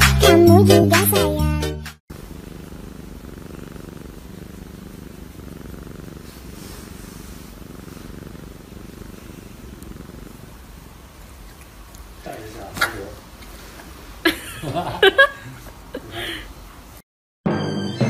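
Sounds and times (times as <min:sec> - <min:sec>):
cat purring: 0:02.1 - 0:14.2.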